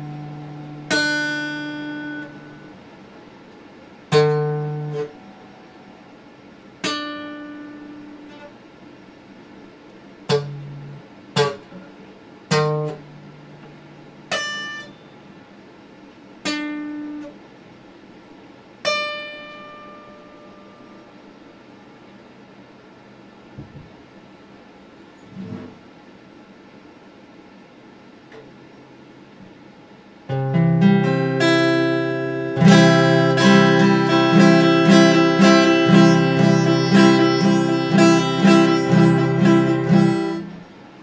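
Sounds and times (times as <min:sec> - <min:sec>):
acoustic guitar strums: 0:00.0 - 0:02.7, 0:04.1 - 0:05.4, 0:10.3 - 0:15.0, 0:18.8 - 0:20.7, 0:30.3 - 0:40.7.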